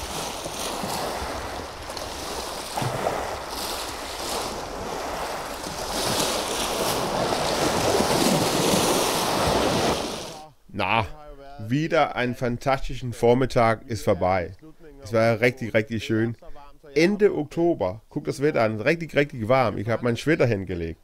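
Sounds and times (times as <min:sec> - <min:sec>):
wind buffeting microphone: 0:00.0 - 0:10.4
waves on a pebble beach: 0:00.0 - 0:10.5.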